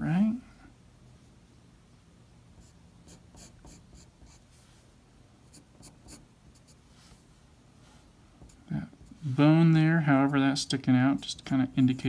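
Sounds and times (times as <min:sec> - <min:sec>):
pencil scratching on paper: 0:02.6 - 0:04.4, 0:05.5 - 0:06.8.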